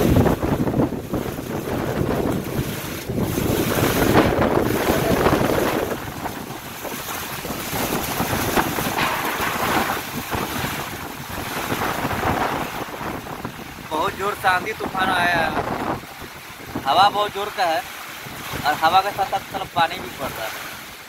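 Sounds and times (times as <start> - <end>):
rain falling: 0.0 - 21.0
wind buffeting microphone: 0.0 - 21.0.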